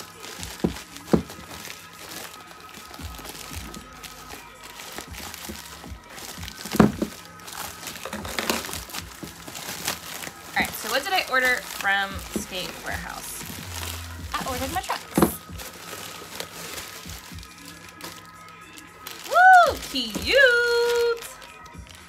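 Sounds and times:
packing material crinkling: 0:00.0 - 0:22.0
quiet background music: 0:00.0 - 0:22.0
box knocks: 0:00.5 - 0:01.6, 0:06.6 - 0:07.2.

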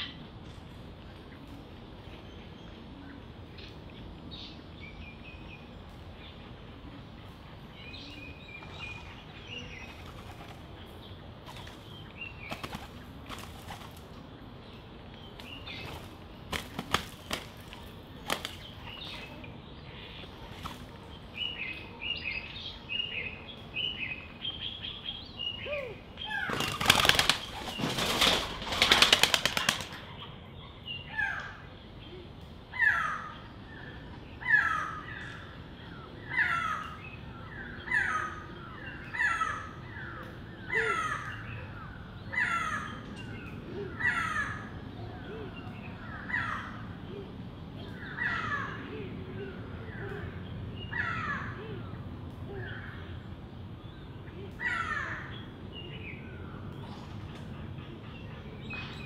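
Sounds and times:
harsh falling bird calls: 0:07.5 - 0:59.0
dove wings clattering: 0:12.5 - 0:14.1, 0:15.8 - 0:18.7, 0:26.5 - 0:30.1.

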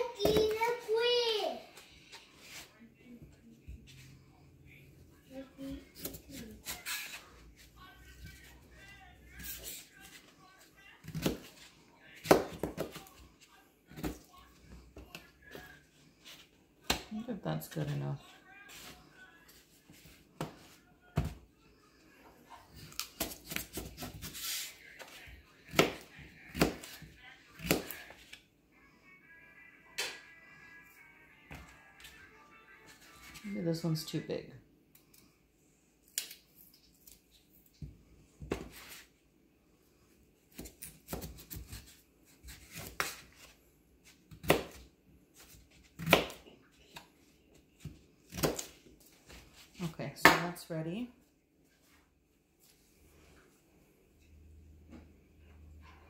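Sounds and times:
knife slicing potato: 0:25.7 - 0:28.1, 0:40.5 - 0:47.0, 0:47.8 - 0:48.8.

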